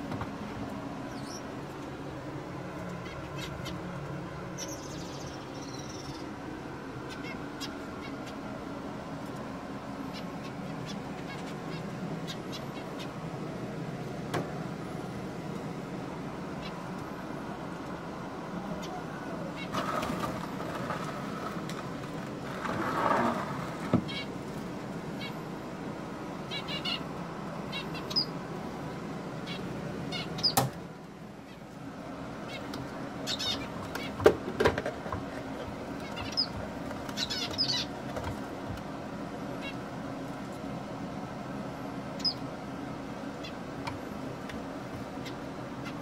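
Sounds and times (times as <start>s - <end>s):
steady hum: 0.0s - 46.0s
finches beeping calls: 3.0s - 3.8s, 26.4s - 28.4s, 29.4s - 30.6s, 32.4s - 34.2s, 36.0s - 38.0s, 42.2s - 42.4s.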